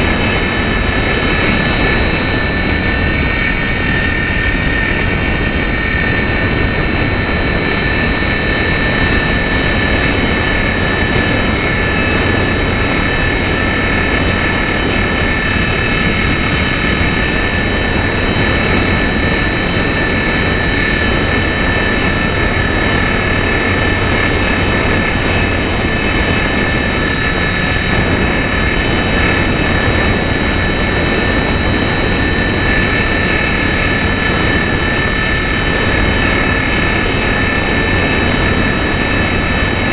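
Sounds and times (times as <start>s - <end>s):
electric motor whine: 0.0s - 39.9s
wind rushing: 22.7s - 33.2s.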